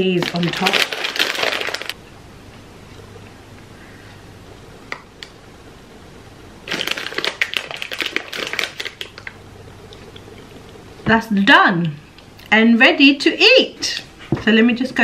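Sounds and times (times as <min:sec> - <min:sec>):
plastic snack bag crinkling: 0:00.0 - 0:02.0, 0:06.6 - 0:09.4.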